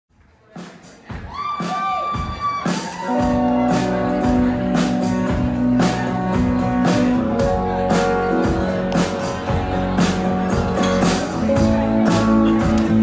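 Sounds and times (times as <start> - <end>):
drums: 0.1 - 13.0
bass line: 1.1 - 13.0
acoustic guitar: 3.2 - 13.0.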